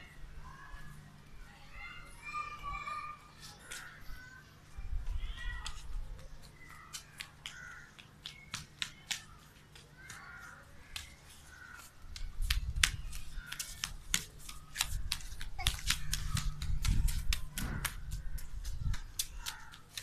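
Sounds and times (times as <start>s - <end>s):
crows cawing: 7.5s - 8.0s, 10.0s - 12.0s, 13.3s - 13.8s, 19.3s - 19.9s.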